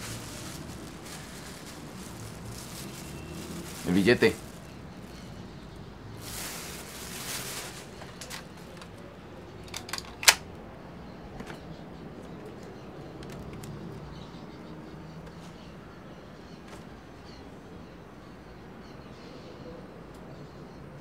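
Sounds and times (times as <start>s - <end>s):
cloth rustling: 0.0s - 5.4s, 6.1s - 9.0s.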